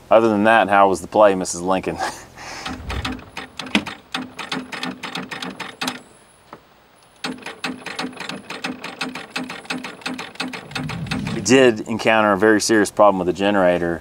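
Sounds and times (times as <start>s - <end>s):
generator electric starter cranking: 2.6s - 6.0s, 7.2s - 11.4s.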